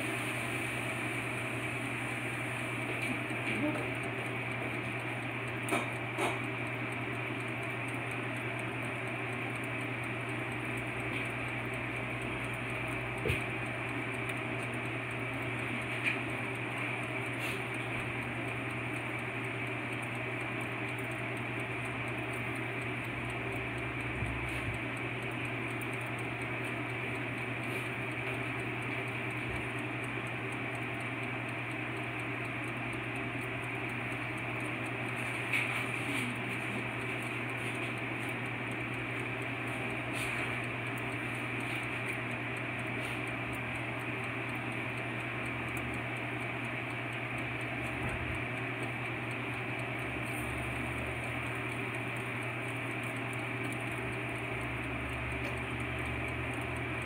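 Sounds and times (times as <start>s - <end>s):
toaster oven humming and hissing: 0.0s - 57.0s
faint clicks: 30.6s - 57.0s.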